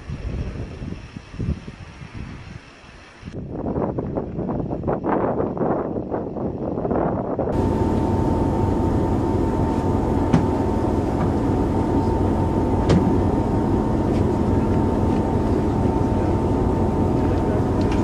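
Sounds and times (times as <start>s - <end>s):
engine drone: 7.5s - 18.0s.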